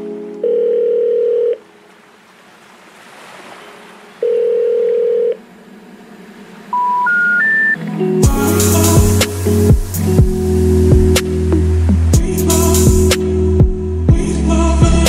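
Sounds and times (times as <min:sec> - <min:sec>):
telephone signal beeps: 0:06.8 - 0:07.8.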